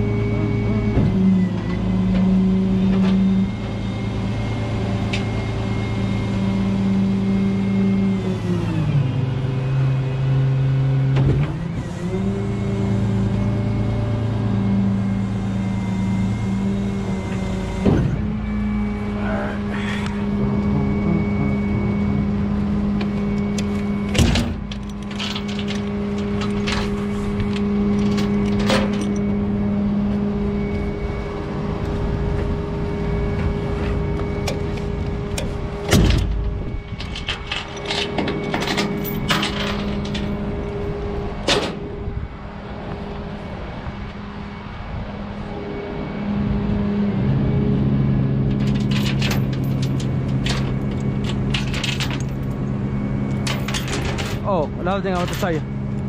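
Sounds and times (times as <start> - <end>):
truck engine idling: 15.4 - 42.8.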